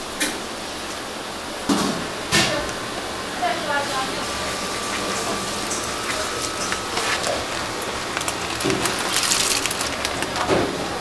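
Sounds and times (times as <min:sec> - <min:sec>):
spices pattering into water: 0:04.3 - 0:10.6.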